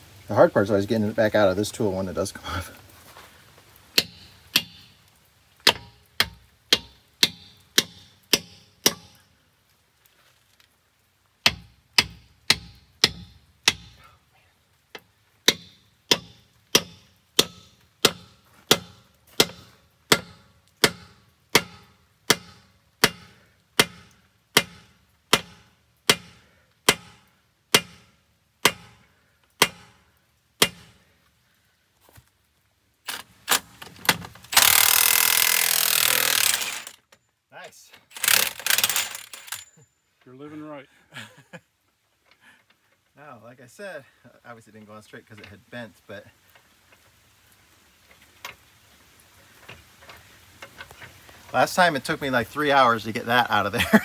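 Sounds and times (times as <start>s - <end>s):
hammer striking metal: 4.0s - 4.9s, 5.7s - 9.2s.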